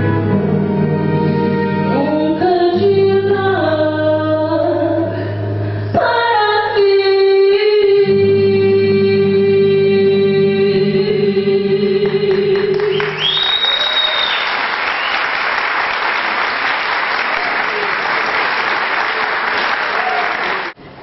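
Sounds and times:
musical accompaniment: 0:00.0 - 0:13.6
audience applause: 0:12.1 - 0:20.8
high whistle from crowd: 0:12.9 - 0:15.4.

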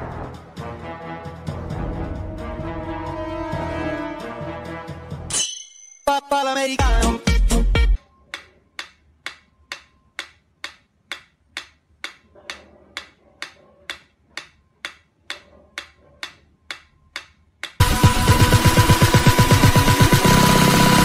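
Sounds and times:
metronome ticking: 0:08.3 - 0:12.3, 0:13.0 - 0:18.0.

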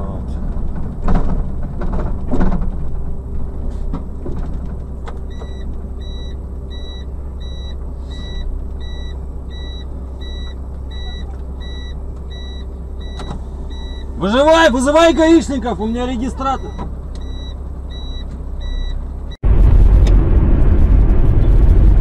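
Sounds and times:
vehicle engine humming: 0:00.0 - 0:22.0
electronic warning beeper: 0:05.3 - 0:14.2, 0:16.4 - 0:19.0.

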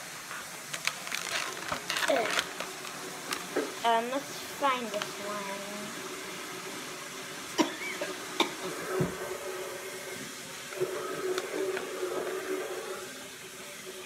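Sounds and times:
packet crackling: 0:00.6 - 0:03.8
packet crinkling and rustling: 0:00.6 - 0:03.8.

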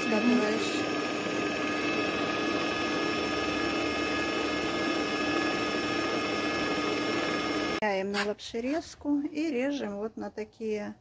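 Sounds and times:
stand mixer motor whining: 0:00.0 - 0:07.8.

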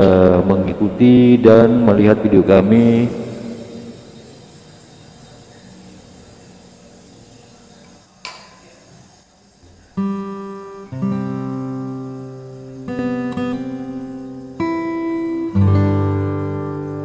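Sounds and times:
sharp click: 0:08.2 - 0:08.7
strummed guitar chords: 0:10.0 - 0:17.0.

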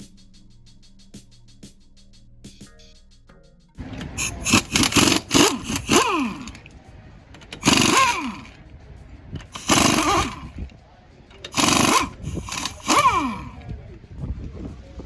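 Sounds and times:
pneumatic impact wrench: 0:04.0 - 0:06.6, 0:07.4 - 0:08.6, 0:09.4 - 0:10.6, 0:11.4 - 0:13.6.

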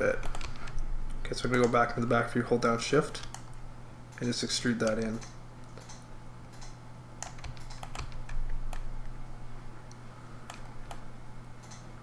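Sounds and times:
steady low hum: 0:00.0 - 0:12.0
keyboard and mouse clicking: 0:00.2 - 0:00.8, 0:03.2 - 0:08.9, 0:09.9 - 0:11.0, 0:11.6 - 0:11.9.

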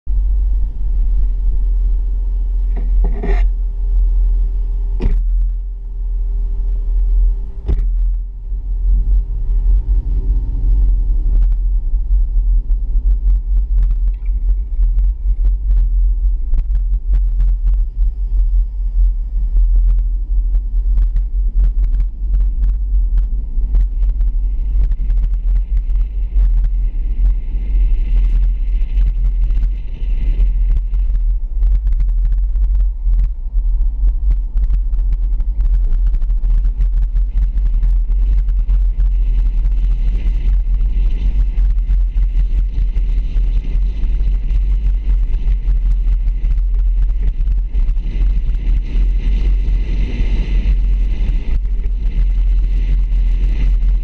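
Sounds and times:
vehicle engine rumble: 0:00.0 - 0:54.0.

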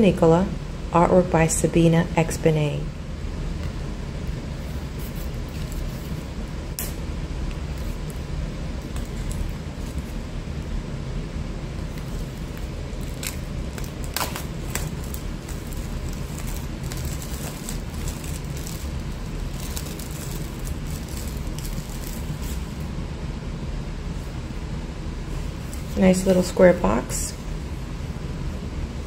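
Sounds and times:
steady low hum: 0:00.0 - 0:29.0
cellophane crinkling: 0:11.8 - 0:22.8.

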